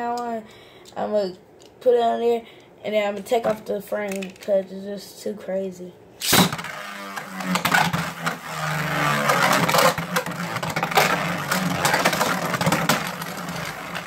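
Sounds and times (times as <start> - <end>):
spinning top whirring: 6.2 - 14.0.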